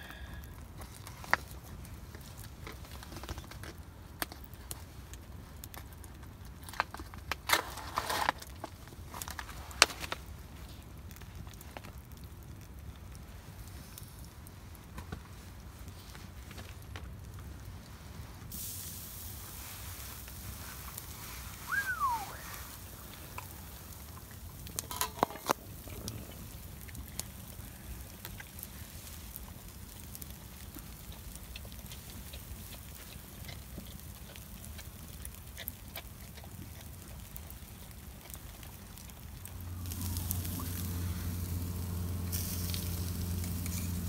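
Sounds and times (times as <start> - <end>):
campfire crackling and popping: 0.0 - 44.0
short falling whistle: 21.7 - 22.6
low steady rumble: 39.0 - 44.0.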